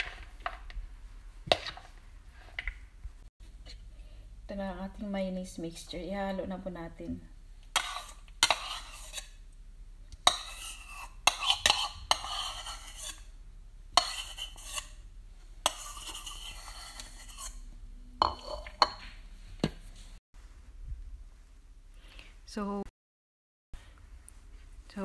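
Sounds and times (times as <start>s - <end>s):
spoon scraping: 1.5s - 2.6s, 7.7s - 9.4s, 10.2s - 19.2s.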